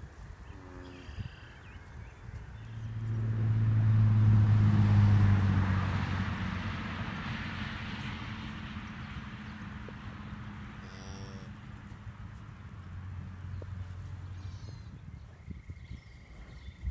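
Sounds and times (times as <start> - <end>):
passing vehicle engine: 2.3 - 15.1.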